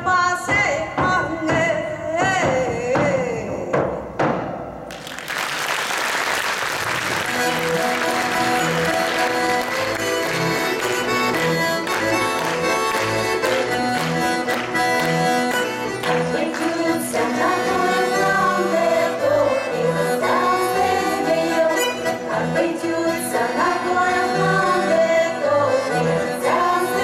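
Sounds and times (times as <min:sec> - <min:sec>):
button accordions playing folk tune: 0:07.0 - 0:27.0.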